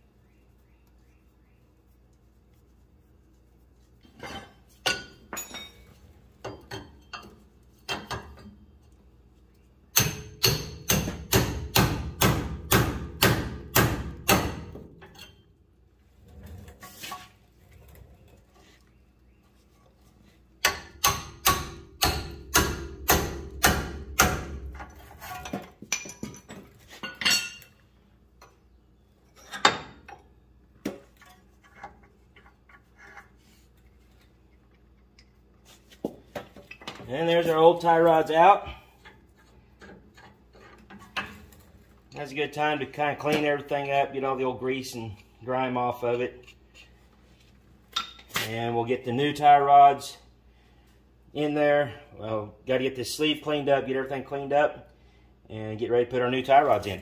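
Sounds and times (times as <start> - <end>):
tools clinking and knocking: 4.0 - 9.0, 14.7 - 15.5, 24.6 - 27.8, 29.2 - 33.4, 47.9 - 48.4
hammer striking metal: 10.0 - 14.7, 20.6 - 24.6.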